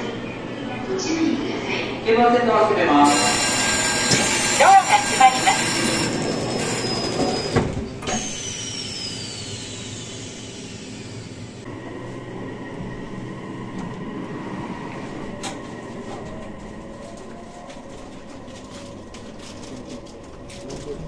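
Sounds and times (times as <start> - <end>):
train hum: 0.0 - 21.0.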